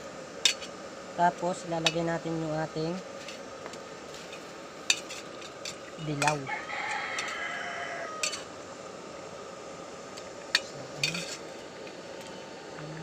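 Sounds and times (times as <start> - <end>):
metal spatula scraping a pan: 4.2 - 6.4, 8.2 - 8.5, 11.0 - 11.5.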